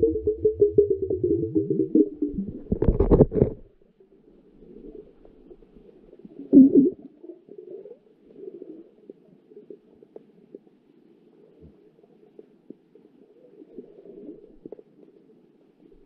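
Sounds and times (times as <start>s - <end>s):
pulsing tone: 0.0s - 3.0s
low underwater rumble: 0.0s - 3.8s, 4.6s - 7.2s
camera housing knocking and scraping: 2.8s - 3.6s.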